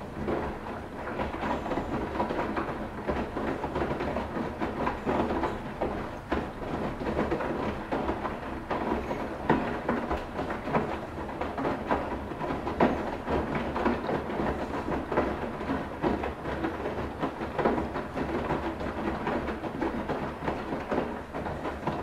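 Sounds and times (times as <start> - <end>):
washing machine churning: 0.0 - 22.0.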